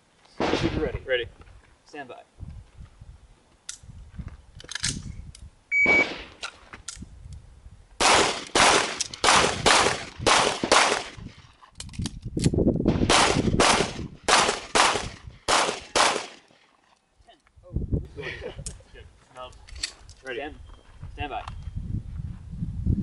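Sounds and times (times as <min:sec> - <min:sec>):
shot timer beep: 0:05.7 - 0:06.2
pistol shots: 0:05.8 - 0:06.4, 0:08.0 - 0:11.2, 0:13.0 - 0:16.5.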